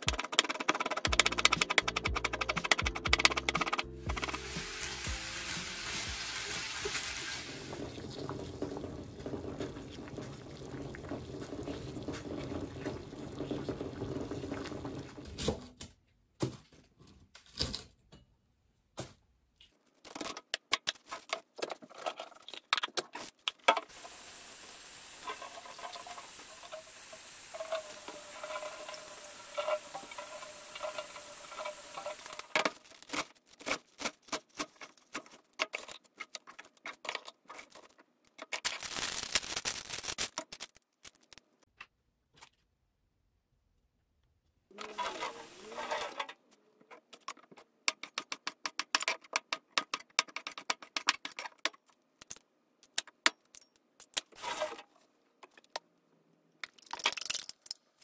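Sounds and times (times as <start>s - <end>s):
clicks and taps: 0.0s - 4.4s, 47.2s - 51.8s
water bubbling in saucepan: 6.1s - 15.2s, 23.9s - 32.4s
leafy greens rustling in colander: 27.5s - 35.2s.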